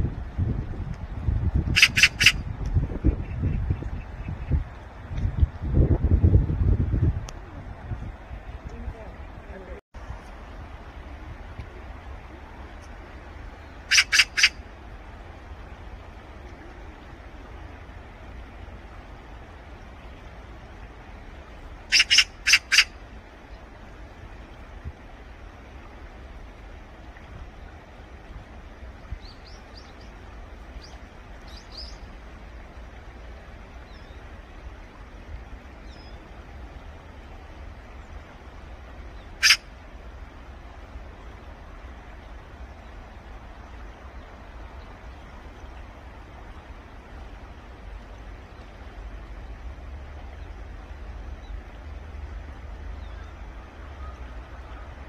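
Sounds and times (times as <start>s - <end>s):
outdoor background hiss: 0.0s - 55.0s
small bird chirping: 1.8s - 2.3s, 13.9s - 14.5s, 21.9s - 22.9s.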